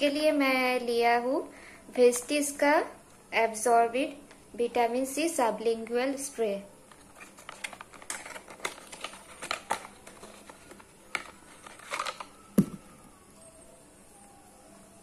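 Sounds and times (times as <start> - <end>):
sharp knock: 12.6 - 12.8.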